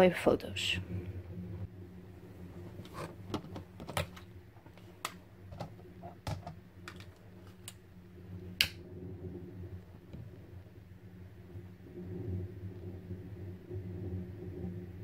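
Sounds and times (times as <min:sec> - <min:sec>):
cooker hood fan humming: 0:00.0 - 0:15.0.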